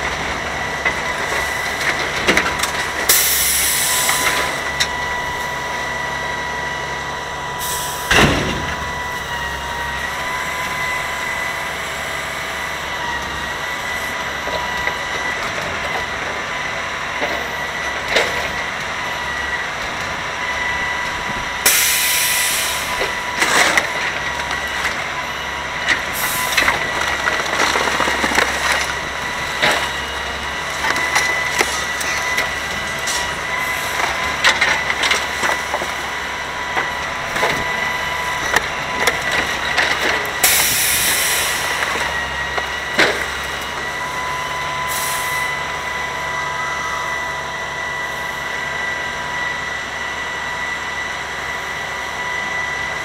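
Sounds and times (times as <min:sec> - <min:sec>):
diesel engine running: 0:00.0 - 0:53.0
debris cracking and snapping: 0:25.8 - 0:30.1.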